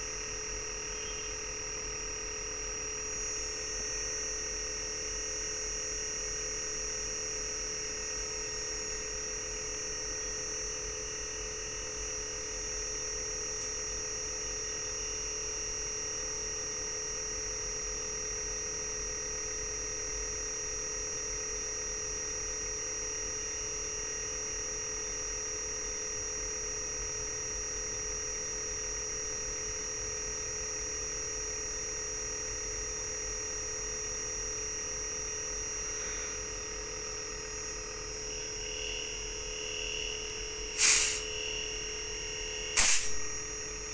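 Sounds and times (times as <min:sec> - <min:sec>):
high-pitched compressor whine: 0:00.0 - 0:43.9.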